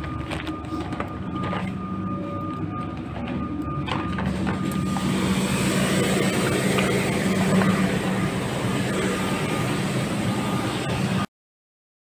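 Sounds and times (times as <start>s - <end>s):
electric train running: 0.0s - 11.3s.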